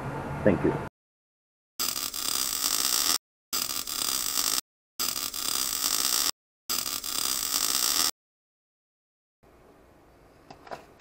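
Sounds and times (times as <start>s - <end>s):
synthetic hissing buzzing cutting: 1.8s - 8.1s.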